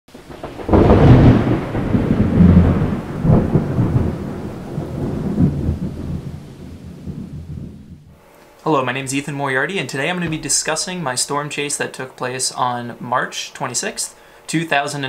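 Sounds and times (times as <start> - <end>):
low rolling thunder: 0.1 - 8.2
thunderclap: 0.1 - 8.2.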